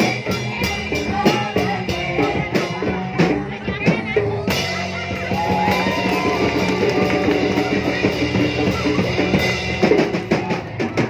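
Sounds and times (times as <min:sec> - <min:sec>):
guitar: 0:00.0 - 0:11.0
ska band playing: 0:00.0 - 0:11.0.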